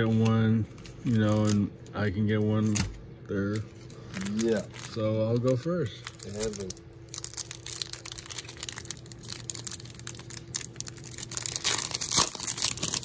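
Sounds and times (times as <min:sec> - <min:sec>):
foil wrapper crinkling and tearing: 0:01.0 - 0:01.6, 0:03.5 - 0:13.0.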